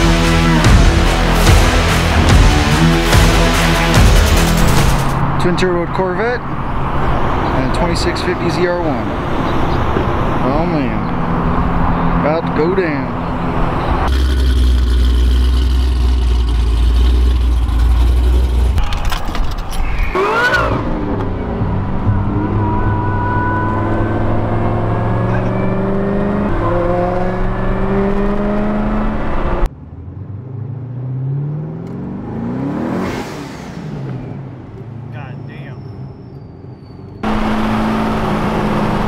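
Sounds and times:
engine revving through gears: 13.6 - 18.8, 20.0 - 35.0, 36.0 - 39.0
engine idle rumble: 14.1 - 18.8.

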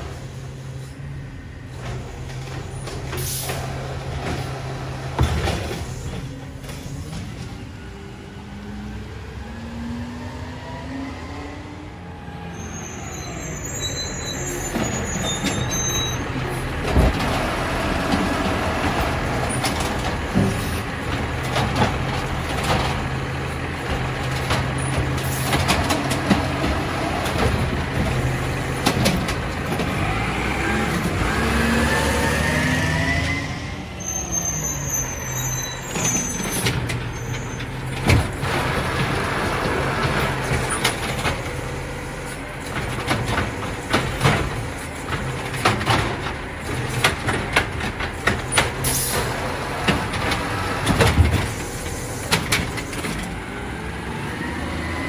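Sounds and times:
garbage truck diesel engine: 0.0 - 55.0.

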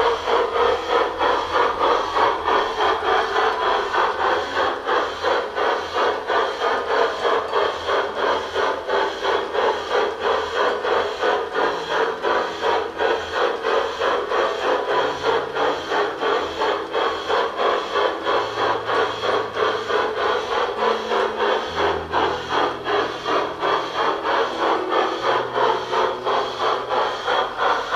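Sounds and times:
model steam train chuffing: 0.0 - 27.9
train wheels running: 0.0 - 27.9.

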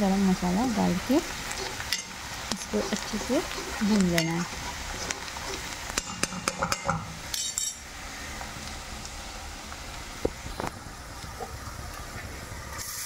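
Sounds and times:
metal spatula clinking and scraping: 2.8 - 7.8.

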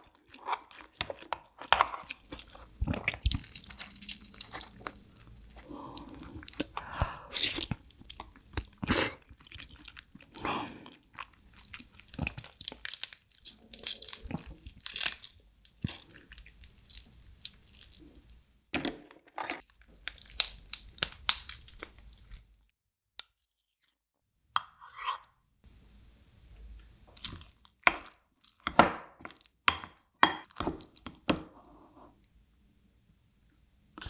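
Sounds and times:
crunching and wet chewing: 0.1 - 6.8
wet squishing: 0.4 - 10.5.

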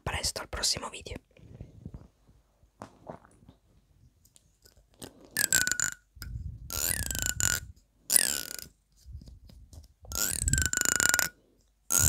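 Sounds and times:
fingernail strumming comb teeth: 10.1 - 11.3.

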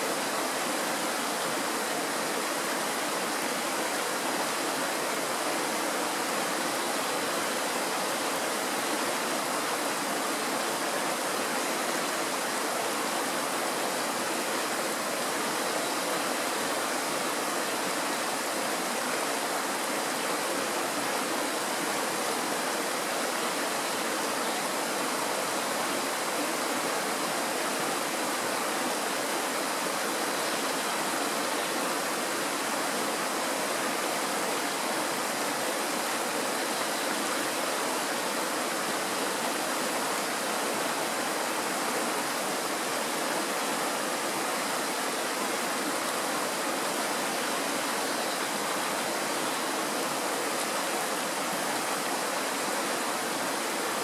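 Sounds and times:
stream running over stones: 0.0 - 54.0.

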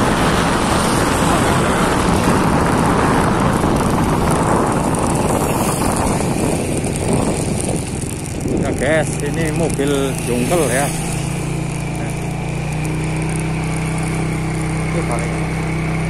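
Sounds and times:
wind rushing past microphone: 0.0 - 12.5
tyres hissing on wet road: 0.0 - 16.0.

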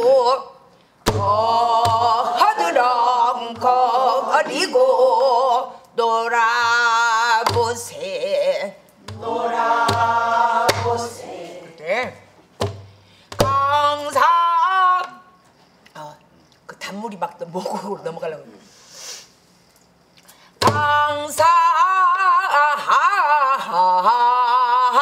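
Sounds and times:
woman singing: 0.0 - 12.0, 13.4 - 15.3, 20.6 - 25.0.

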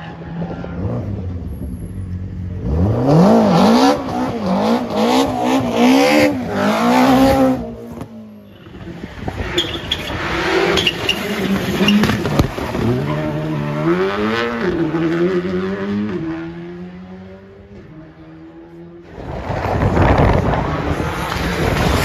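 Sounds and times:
rally car sliding on gravel: 19.1 - 22.0.

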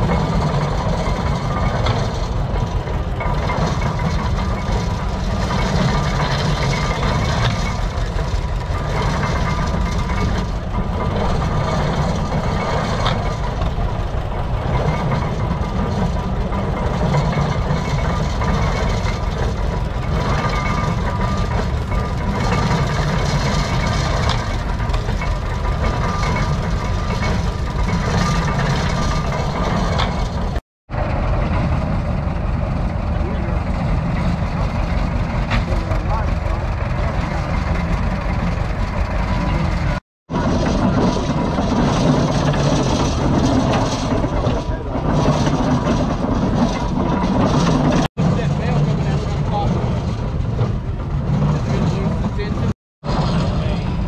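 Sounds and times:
hay baler mechanical rumble: 0.0 - 54.0.

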